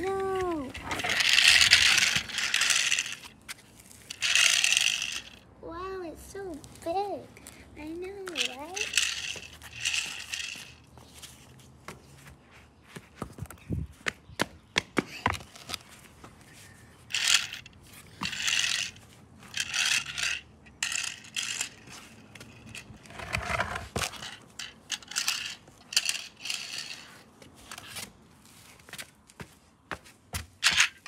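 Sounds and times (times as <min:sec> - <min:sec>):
toy car scraping on concrete: 0:00.0 - 0:05.4, 0:08.2 - 0:11.5, 0:17.1 - 0:28.7, 0:30.6 - 0:31.0.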